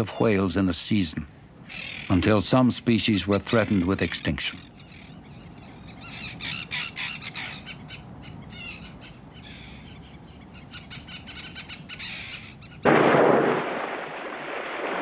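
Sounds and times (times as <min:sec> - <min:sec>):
birds chirping: 0:01.6 - 0:12.9.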